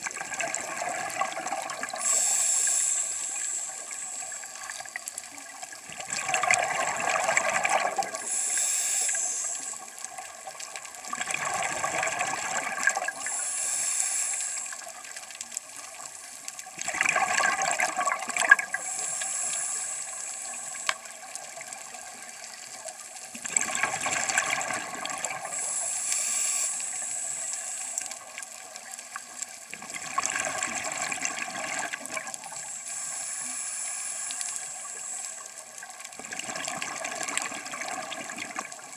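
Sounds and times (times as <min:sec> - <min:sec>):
exhaled bubbles gushing: 0:00.0 - 0:02.1, 0:05.8 - 0:08.3, 0:10.3 - 0:13.3, 0:16.8 - 0:19.0, 0:23.3 - 0:25.6, 0:29.7 - 0:32.6, 0:36.0 - 0:38.9
regulator hiss: 0:01.2 - 0:05.6, 0:07.4 - 0:10.2, 0:12.8 - 0:16.5, 0:18.6 - 0:22.8, 0:25.3 - 0:29.6, 0:32.4 - 0:36.0.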